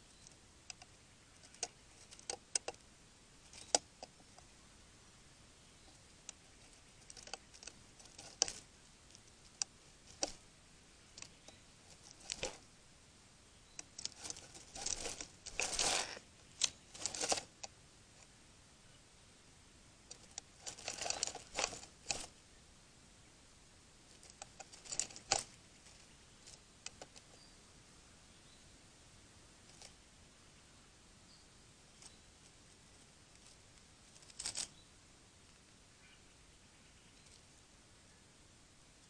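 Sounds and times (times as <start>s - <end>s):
dry twigs and leaves rustling: 0.0s - 2.8s, 3.4s - 4.5s, 5.7s - 12.7s, 13.6s - 18.3s, 20.0s - 22.4s, 24.0s - 27.4s, 31.9s - 34.8s.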